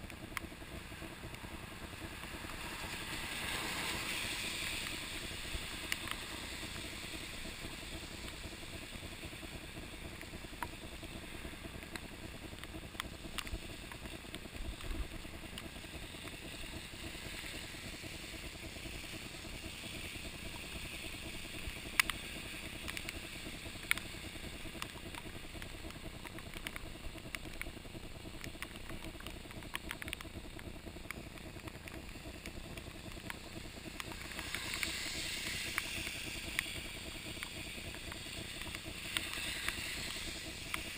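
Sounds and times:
wet tyres hissing on road: 0:00.6 - 0:10.1, 0:13.2 - 0:24.8, 0:33.1 - 0:40.9.

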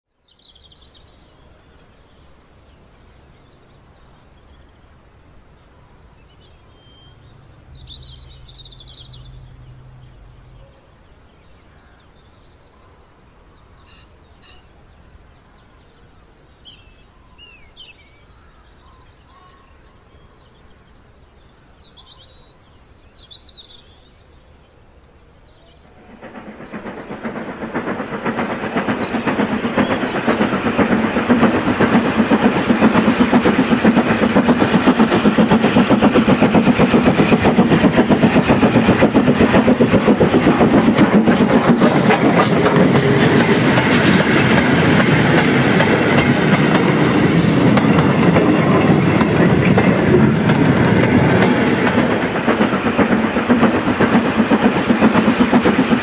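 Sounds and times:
birdsong chirps and trills: 0:00.2 - 0:56.0
model train rattling on track: 0:25.6 - 0:56.0.

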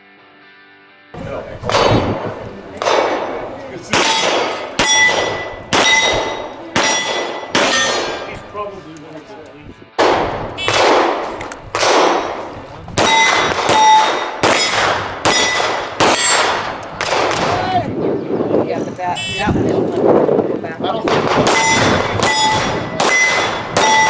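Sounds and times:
pistol shots: 0:01.7 - 0:08.4, 0:10.0 - 0:17.6, 0:21.1 - 0:24.0
steel plate target ringing: 0:04.0 - 0:08.5, 0:13.0 - 0:16.5, 0:21.5 - 0:24.0.

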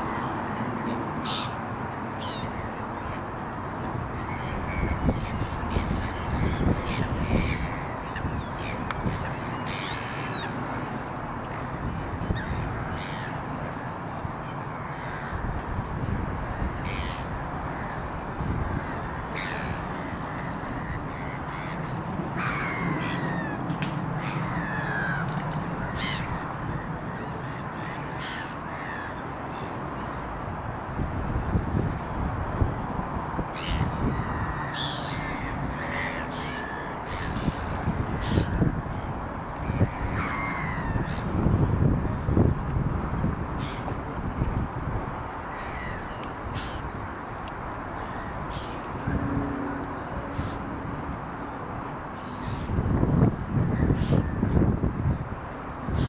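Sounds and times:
outdoor background noise: 0:00.0 - 0:56.0
birds giving harsh calls: 0:12.4 - 0:13.4, 0:16.8 - 0:23.6, 0:24.2 - 0:29.2, 0:33.6 - 0:38.6, 0:45.5 - 0:46.9.

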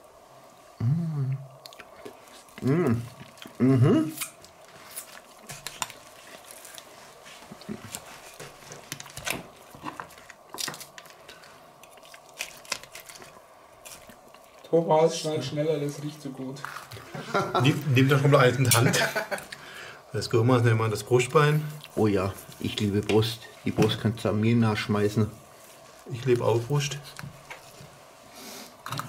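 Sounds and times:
short voice sounds: 0:00.8 - 0:01.5
knife carving crisp skin: 0:11.8 - 0:14.1.

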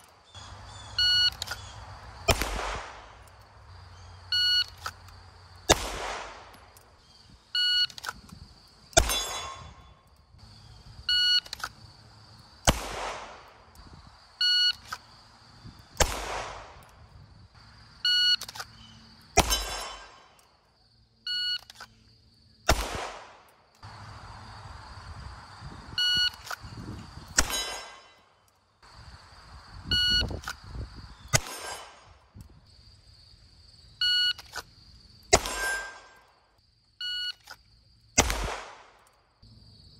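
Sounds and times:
pistol shot: 0:02.3 - 0:03.2, 0:05.7 - 0:06.7, 0:09.0 - 0:09.8, 0:12.6 - 0:13.6, 0:16.0 - 0:16.8, 0:19.4 - 0:20.3, 0:22.7 - 0:23.5, 0:27.4 - 0:28.1, 0:31.3 - 0:32.1, 0:35.3 - 0:36.2, 0:38.2 - 0:39.0.

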